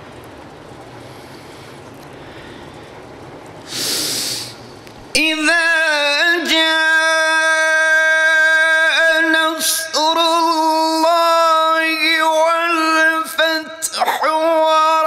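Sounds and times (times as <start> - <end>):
loud breath into microphone: 1.1 - 3.0, 3.7 - 4.6
melodic recitation: 5.2 - 15.0.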